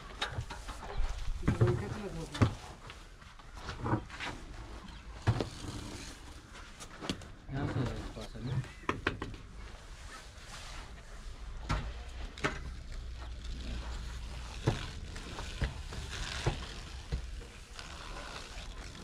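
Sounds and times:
tools tapping and scraping mortar: 0:07.8 - 0:09.5.

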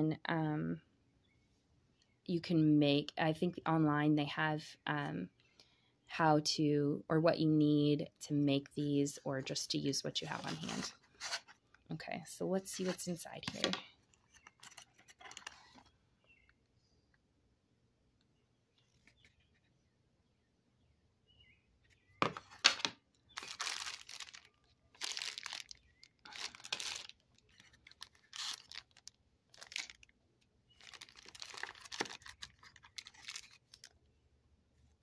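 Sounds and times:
plastic bags crinkling: 0:22.3 - 0:34.0.

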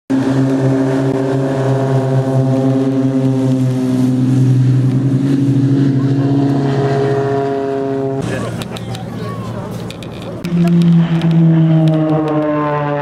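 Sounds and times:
propeller plane engines droning: 0:00.1 - 0:13.0.

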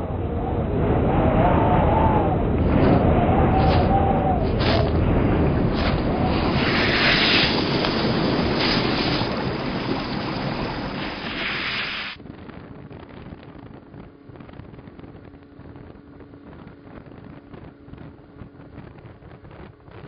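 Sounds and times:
wind on microphone: 0:00.0 - 0:20.0
loud rushing whoosh: 0:02.3 - 0:12.2.

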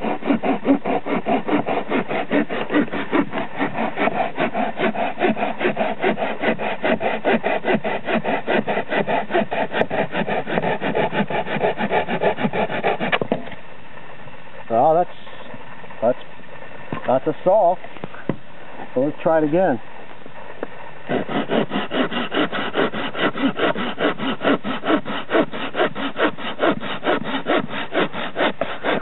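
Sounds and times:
hand saw sawing a branch: 0:00.0 - 0:13.5, 0:21.0 - 0:29.0.

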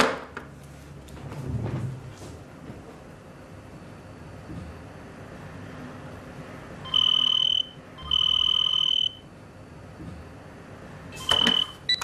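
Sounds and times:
electronic telephone ringer trilling: 0:06.9 - 0:09.2, 0:11.2 - 0:12.0.

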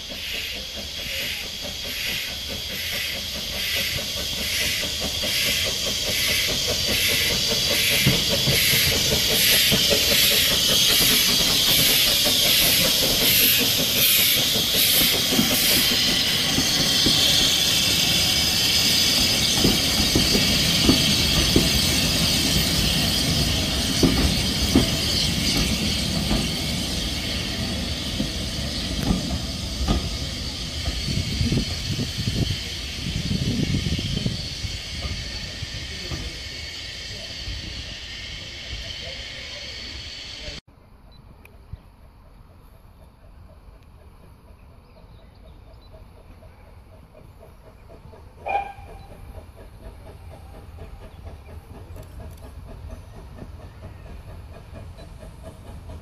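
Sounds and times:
steam hiss: 0:00.0 - 0:40.6
steam locomotive exhaust beats: 0:00.0 - 0:40.6, 0:41.3 - 0:56.0
train wheels clicking over rail joints: 0:00.0 - 0:40.6, 0:41.4 - 0:56.0.

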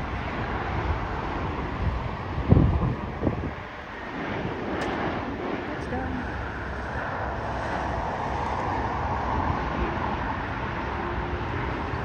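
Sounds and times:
jet engine rushing: 0:00.0 - 0:12.0.

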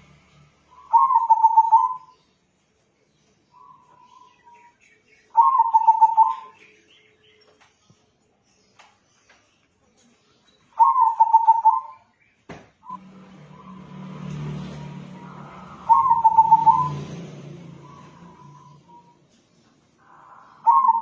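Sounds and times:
dove cooing: 0:00.8 - 0:02.1, 0:05.3 - 0:06.6, 0:10.8 - 0:12.0, 0:14.8 - 0:17.2, 0:20.0 - 0:21.0
low hum: 0:12.8 - 0:20.8.

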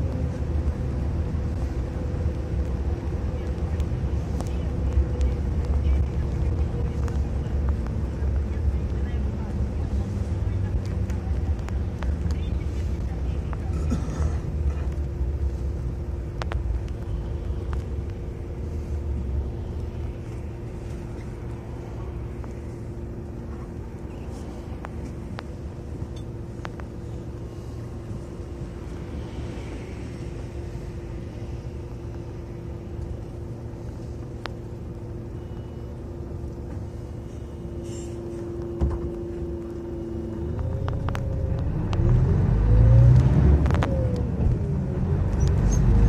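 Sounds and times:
bus engine rumbling: 0:00.0 - 0:46.0.

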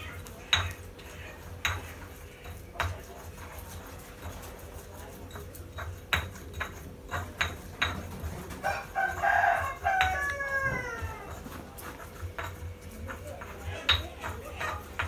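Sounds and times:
utensil knocking in bowl: 0:05.3 - 0:15.0
rooster crowing: 0:08.6 - 0:11.4.

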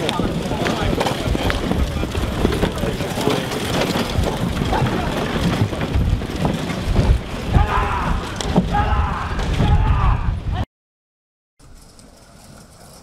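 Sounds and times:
horses galloping on sand: 0:00.0 - 0:09.6, 0:11.6 - 0:13.0
man shouting: 0:07.5 - 0:10.4.

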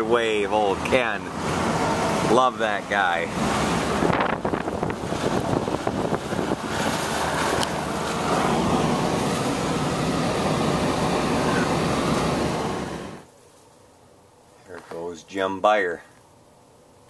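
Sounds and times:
car road noise: 0:00.0 - 0:13.3
wind buffeting microphone: 0:03.2 - 0:13.2.

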